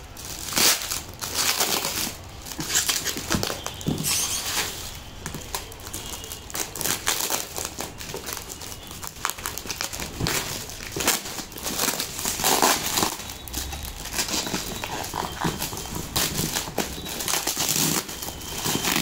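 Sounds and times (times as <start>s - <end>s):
packing tape tearing and crinkling: 0.0s - 19.0s.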